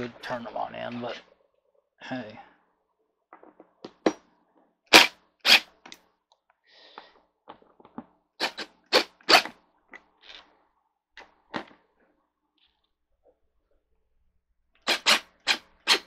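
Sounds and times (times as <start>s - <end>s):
impact driver bursts: 4.9s - 5.7s, 14.8s - 16.0s.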